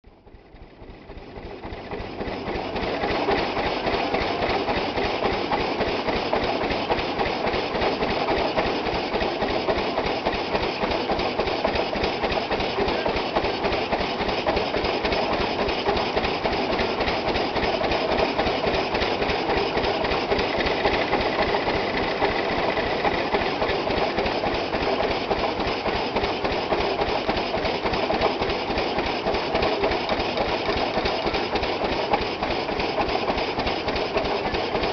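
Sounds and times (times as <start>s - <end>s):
threshing machine and tractor clattering: 0.6s - 34.9s.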